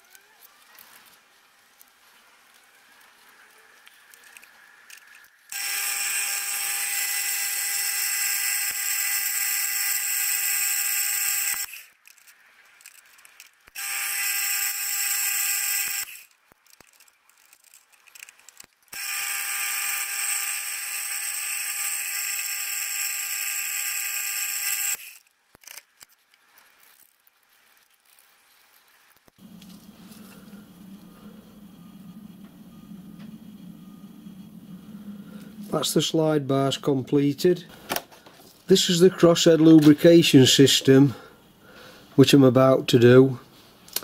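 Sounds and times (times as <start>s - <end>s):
drilling machine high whine: 5.5s - 11.8s, 13.8s - 16.2s, 19.0s - 25.0s.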